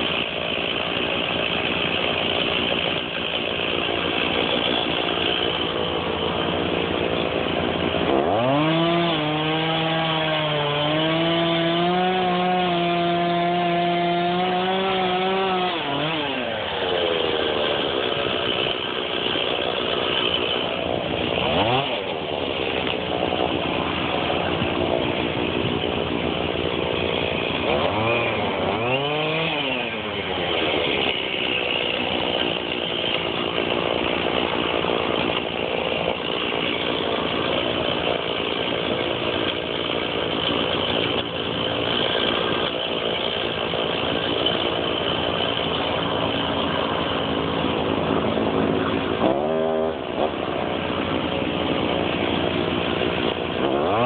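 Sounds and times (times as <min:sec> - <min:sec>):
chainsaw cutting wood: 0:00.0 - 0:54.0.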